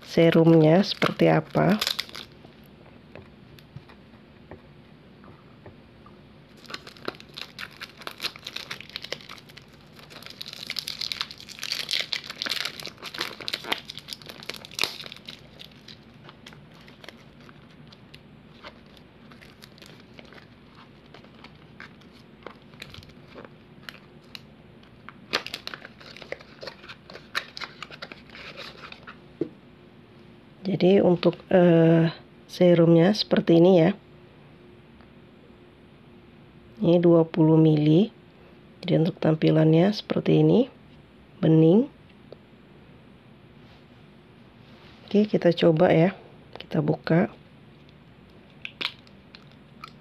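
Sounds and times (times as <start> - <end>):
plastic wrapping crinkling and tearing: 0.0 - 2.4, 6.5 - 29.2, 48.5 - 50.0.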